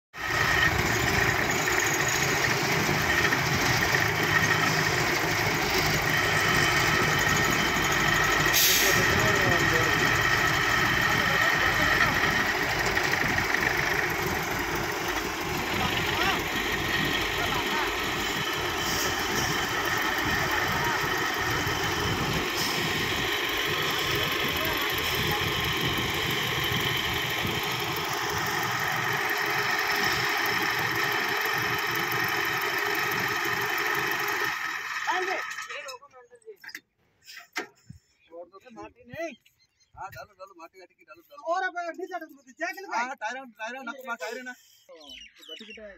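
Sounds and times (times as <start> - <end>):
diesel engine running: 0.1 - 35.8.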